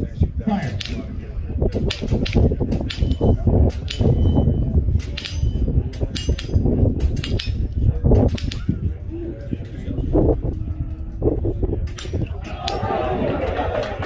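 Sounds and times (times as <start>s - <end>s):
steady low rumble: 0.0s - 14.0s
pellets striking steel targets: 0.5s - 1.1s.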